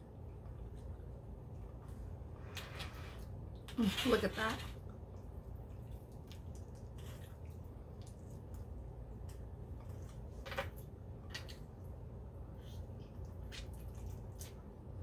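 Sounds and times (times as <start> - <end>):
low steady hum: 0.0 - 15.0
wet squishing of meat: 5.3 - 8.8.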